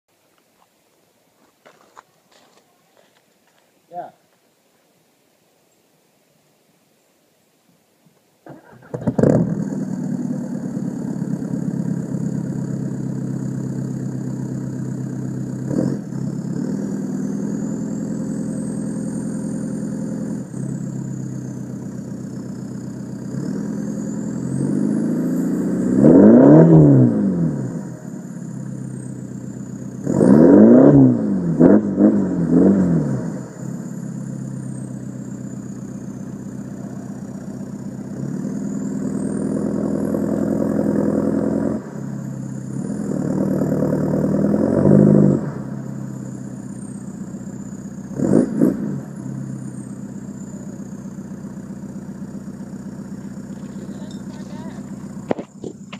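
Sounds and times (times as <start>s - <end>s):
diesel engine idling and revving: 8.5s - 55.9s.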